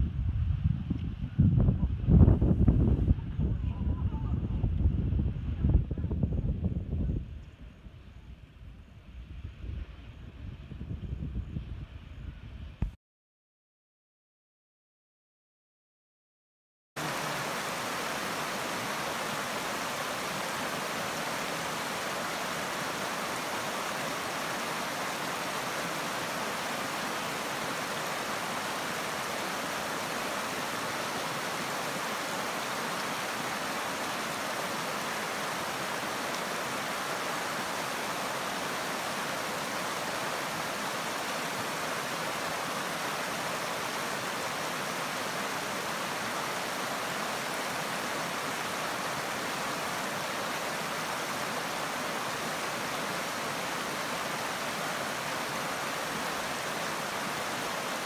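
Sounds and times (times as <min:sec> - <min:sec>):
river rushing over rocks: 0:17.0 - 0:58.0.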